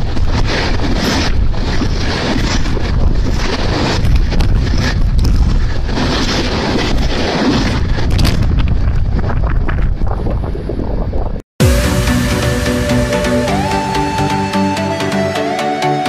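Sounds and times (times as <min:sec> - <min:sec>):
wind buffeting microphone: 0:00.0 - 0:11.4.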